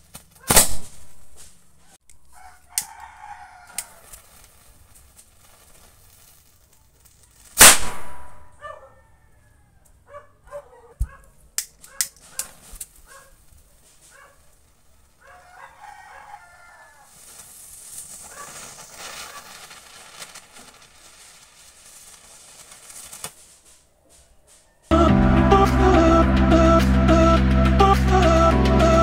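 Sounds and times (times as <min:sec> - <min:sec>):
sharp cracks: 0:00.0 - 0:03.0, 0:03.7 - 0:08.6, 0:17.0 - 0:23.9
rocket hissing sparks: 0:00.4 - 0:01.6, 0:02.8 - 0:08.6, 0:12.1 - 0:23.9
rooster crowing: 0:02.3 - 0:04.2, 0:08.6 - 0:10.2, 0:15.2 - 0:17.2.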